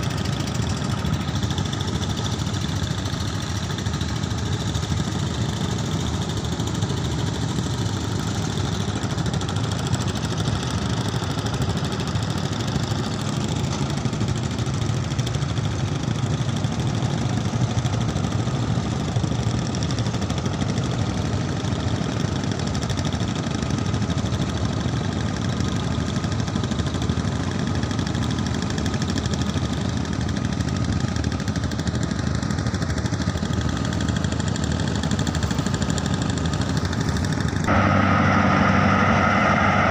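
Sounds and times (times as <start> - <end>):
boat engine running: 33.4 - 39.9.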